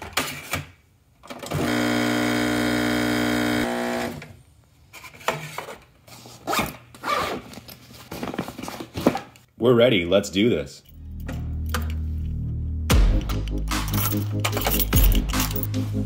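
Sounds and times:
espresso machine pump buzzing: 1.6s - 4.1s.

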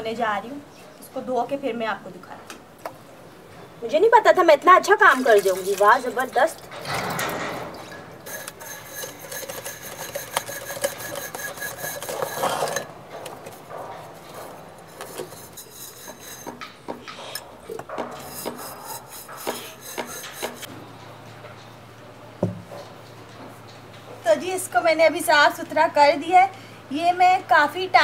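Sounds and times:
water pouring over metal: 5.0s - 12.8s
metal parts rubbing and clinking: 5.1s - 20.7s
metal pieces scraping and knocking: 5.4s - 13.6s, 14.2s - 20.7s.

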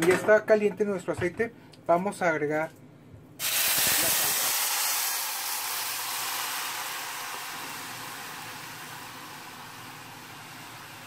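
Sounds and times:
salsa sizzling in hot oil: 3.4s - 11.0s.

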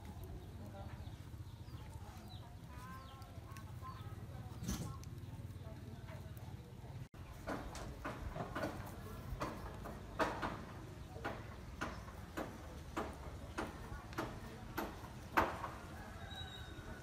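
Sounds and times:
sharp knocks: 7.4s - 15.8s.

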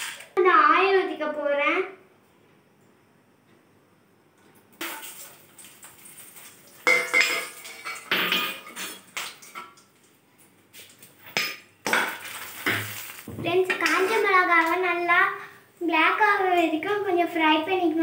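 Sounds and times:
chillies dropped into hot oil: 4.8s - 9.6s, 11.8s - 14.1s.

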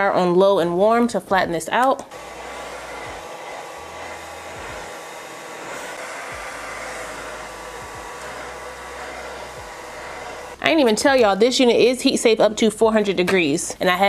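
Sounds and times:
blow dryer running: 2.0s - 11.4s.

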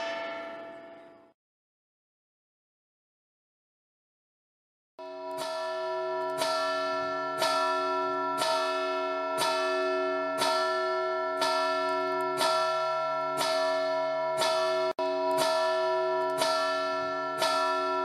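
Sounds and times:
large church bell tolling: 0.0s - 1.4s, 5.0s - 18.0s.

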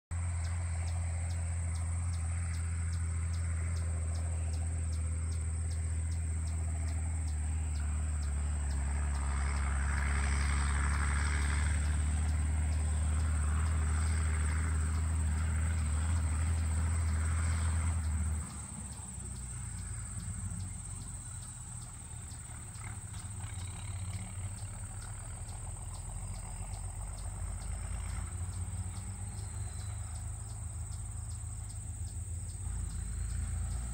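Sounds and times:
engine humming: 0.1s - 33.9s
crickets chirping: 0.2s - 33.9s.

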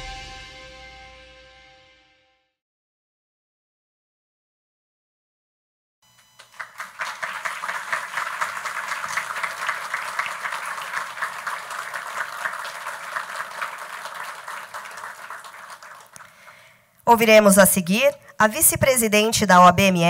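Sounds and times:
audience applauding: 6.4s - 16.8s.

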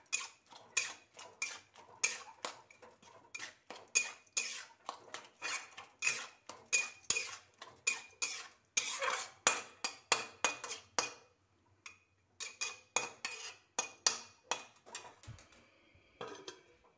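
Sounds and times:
metal spatula scraping iron pan: 0.0s - 9.6s, 12.4s - 13.9s.

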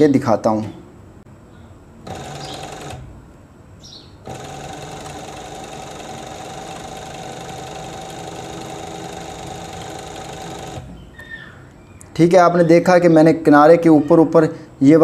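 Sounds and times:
sewing machine humming: 2.0s - 3.2s, 4.2s - 11.0s.

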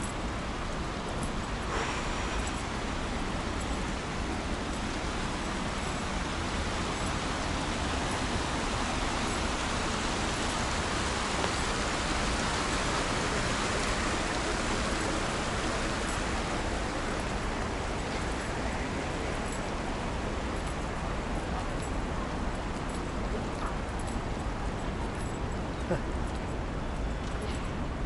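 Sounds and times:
stream rushing over rocks: 0.1s - 26.8s.

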